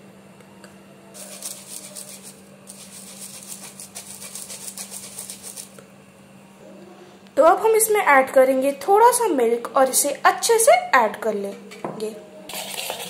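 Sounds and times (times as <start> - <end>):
powder sifting through strainer: 1.2 - 5.8, 12.5 - 13.0.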